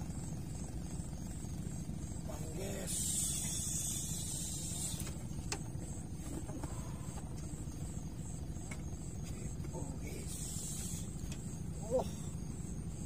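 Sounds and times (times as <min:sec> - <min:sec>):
low pulsing motor drone: 0:00.0 - 0:13.0
hiss: 0:02.7 - 0:05.3, 0:10.2 - 0:11.4.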